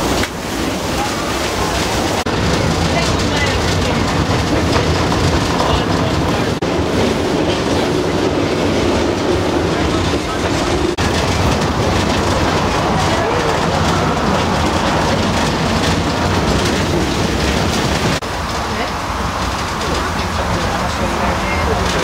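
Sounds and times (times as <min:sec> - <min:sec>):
train wheels clickety-clack on rail: 0:00.0 - 0:22.0.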